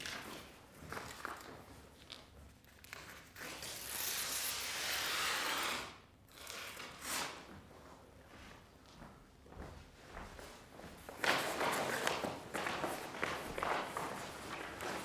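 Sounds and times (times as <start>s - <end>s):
paper tearing: 3.0s - 7.4s.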